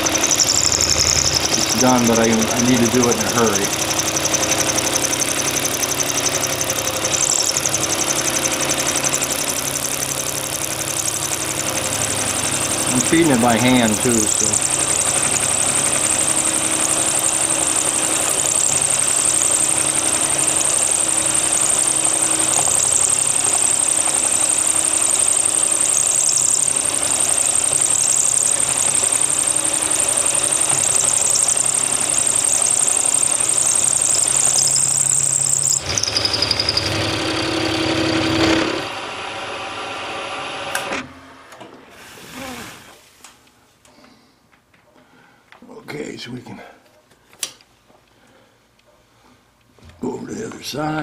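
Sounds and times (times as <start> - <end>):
milling machine cutting metal: 0.0 - 39.2.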